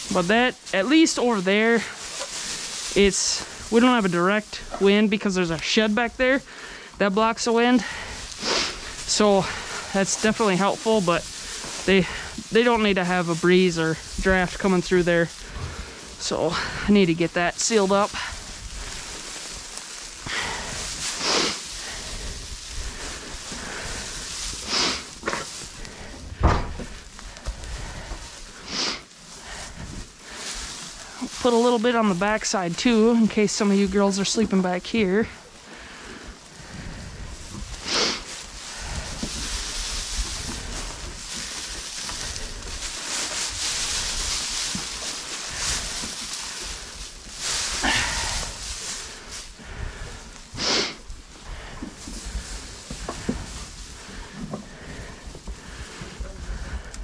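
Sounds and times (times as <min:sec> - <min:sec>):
straw rustling: 0:00.0 - 0:57.0
straw swishes: 0:18.4 - 0:26.2, 0:36.7 - 0:49.5
sharp thump: 0:26.4 - 0:26.9.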